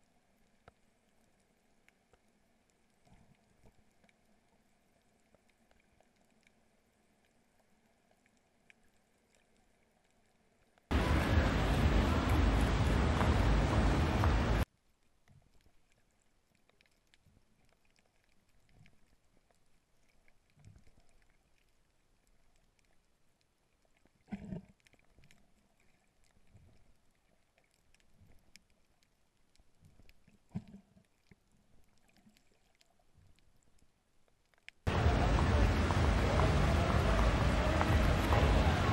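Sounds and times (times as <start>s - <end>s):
underwater swishes of swimming: 0.0s - 38.9s
loud underwater thumps: 10.9s - 14.6s, 34.9s - 38.9s.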